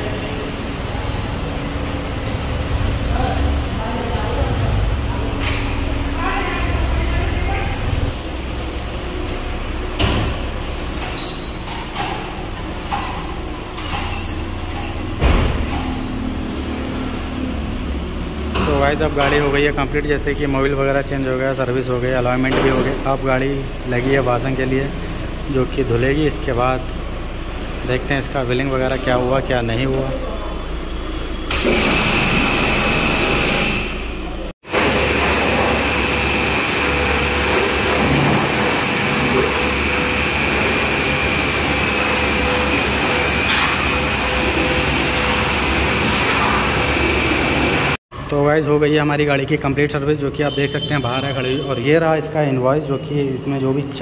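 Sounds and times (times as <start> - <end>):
pressure washer spraying: 31.5 - 34.0, 34.7 - 48.0.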